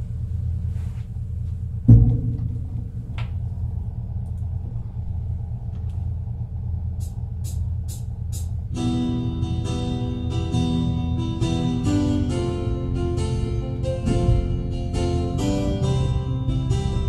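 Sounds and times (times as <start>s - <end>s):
low rumble and hum: 0.0s - 17.0s
loud thump: 1.8s - 4.1s.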